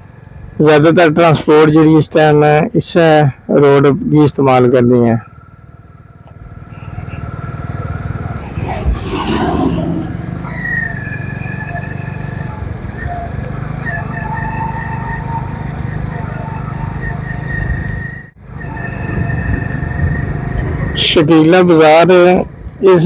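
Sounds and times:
vehicle engine drone: 0:00.0 - 0:02.6, 0:03.3 - 0:23.0
surrounding traffic: 0:00.0 - 0:23.0
short falling sweep: 0:08.2 - 0:11.0.

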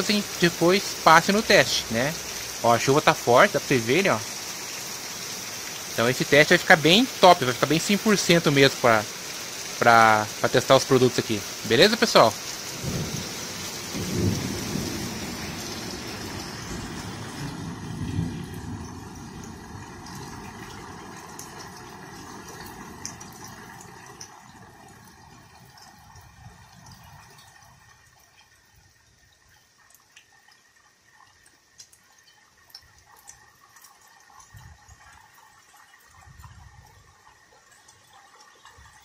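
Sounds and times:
heavy rain falling: 0:00.0 - 0:28.4
water dripping: 0:00.0 - 0:39.0.

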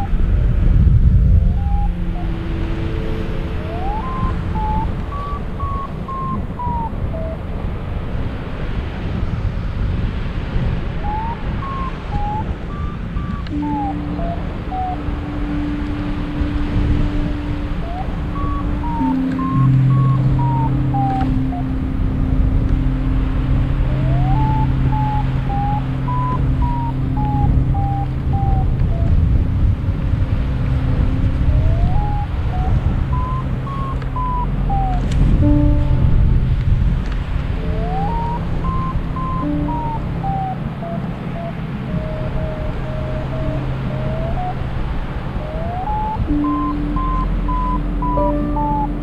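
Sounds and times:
variometer beeping: 0:00.0 - 0:07.4, 0:11.0 - 0:49.0
steady low electronic tone: 0:00.0 - 0:08.2, 0:10.8 - 0:49.0
wind rushing over microphone: 0:00.0 - 0:49.0
short electronic tones: 0:11.1 - 0:23.1, 0:31.1 - 0:36.5, 0:37.6 - 0:42.1, 0:45.8 - 0:49.0.

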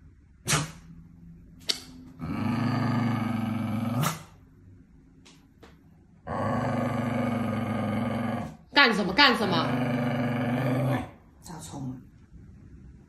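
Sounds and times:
dog growling and snarling: 0:02.2 - 0:04.4, 0:06.2 - 0:08.6, 0:09.4 - 0:11.2.

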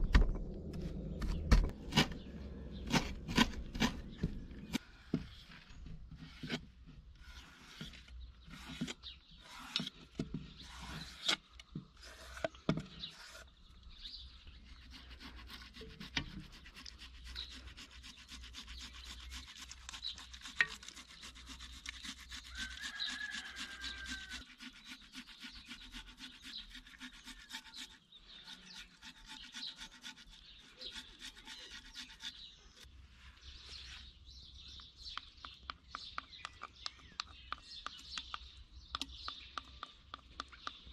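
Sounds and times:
bird chirping: 0:00.0 - 0:06.6, 0:07.2 - 0:40.9
rapid scraping strokes: 0:00.8 - 0:05.6, 0:14.6 - 0:32.9.

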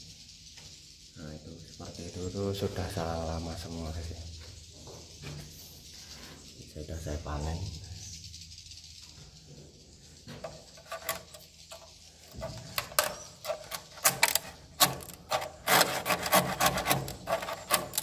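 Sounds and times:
knife blade scraping wood: 0:10.4 - 0:18.0.

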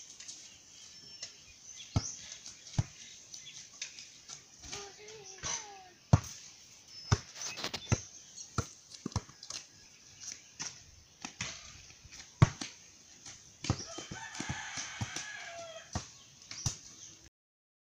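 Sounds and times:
basketball bouncing on dirt: 0:01.3 - 0:03.6, 0:04.3 - 0:17.1
rooster crowing: 0:13.8 - 0:16.1.

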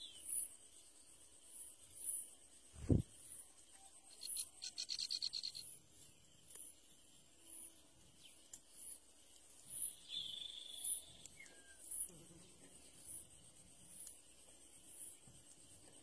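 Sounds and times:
faint high ticks: 0:08.4 - 0:09.9.

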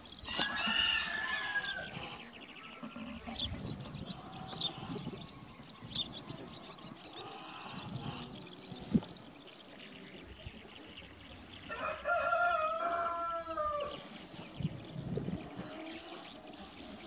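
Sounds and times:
rooster crowing: 0:00.3 - 0:01.9, 0:11.7 - 0:14.0.

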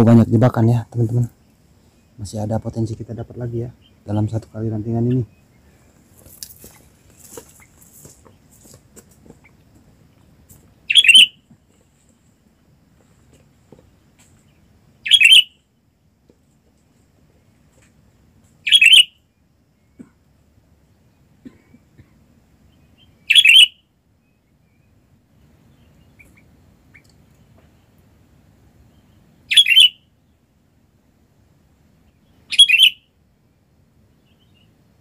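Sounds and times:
bird calls: 0:00.0 - 0:12.3, 0:13.4 - 0:15.7, 0:18.6 - 0:20.2, 0:21.0 - 0:25.0, 0:25.6 - 0:28.0, 0:28.8 - 0:30.4, 0:32.0 - 0:33.2, 0:34.1 - 0:34.8.

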